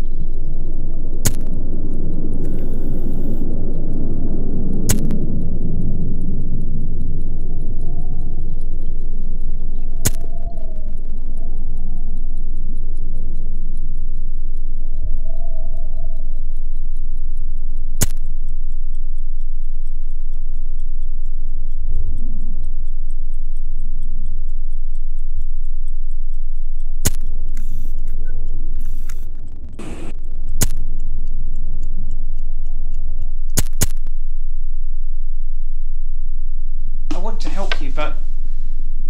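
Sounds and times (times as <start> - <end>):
loud low drone: 0.0 - 12.1, 29.7 - 32.9
rapid clock-like ticking: 0.1 - 34.0
sharp click: 1.2 - 1.6, 4.9 - 5.3, 10.0 - 10.8, 18.0 - 18.3, 27.0 - 31.4, 33.5 - 34.1.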